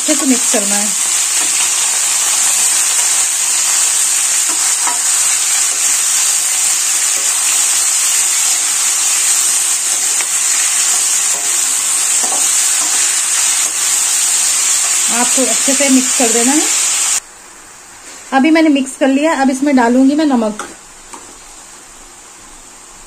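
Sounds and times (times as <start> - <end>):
vegetables sizzling in hot oil: 0.0 - 17.2.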